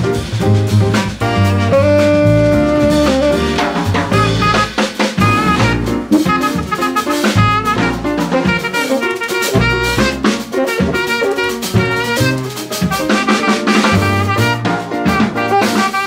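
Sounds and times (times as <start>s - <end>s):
bass: 0.0s - 16.0s
drum kit: 0.0s - 16.0s
piano: 0.0s - 16.0s
saxophone: 1.2s - 16.0s.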